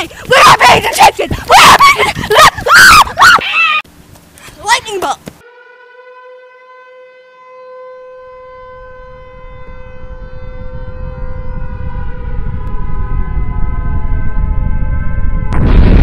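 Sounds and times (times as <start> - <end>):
air-raid siren: 5.4 - 16.0
low rumble: 9.2 - 16.0.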